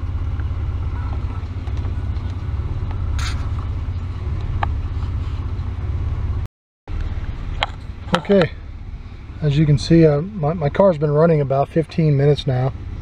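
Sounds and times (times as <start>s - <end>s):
car engine idling rough: 0.0s - 13.0s
scraping noise: 3.1s - 3.7s.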